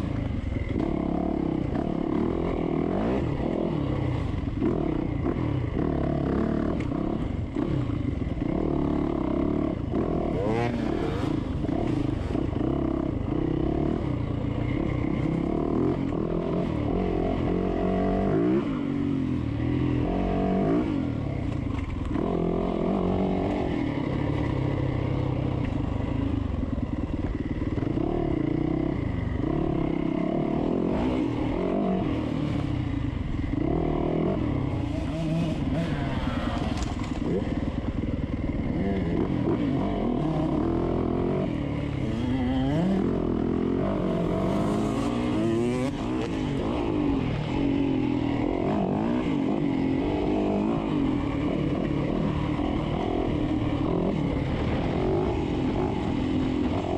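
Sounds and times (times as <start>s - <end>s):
dirt bike engine revving: 0.6s - 14.1s, 27.4s - 32.6s, 33.4s - 56.9s.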